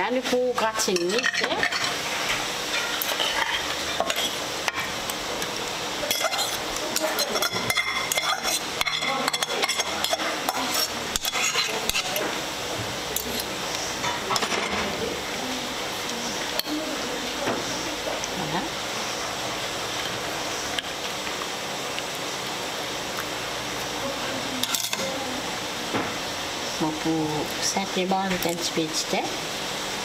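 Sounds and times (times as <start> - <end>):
metal spoon scraping and clinking: 0.8 - 2.1, 2.7 - 4.4, 6.0 - 12.3, 13.2 - 14.7, 24.6 - 25.2.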